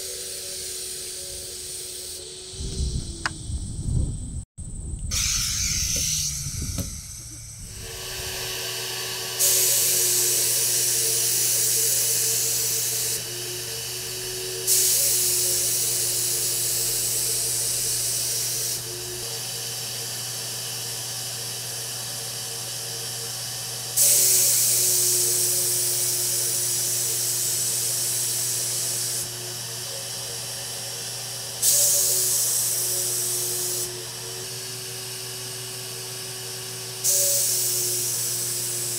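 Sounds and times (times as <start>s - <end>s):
paint sprayer turbine humming: 0.0s - 3.6s, 5.1s - 38.9s
spray gun hissing: 5.1s - 19.2s, 24.0s - 29.3s, 37.0s - 38.9s.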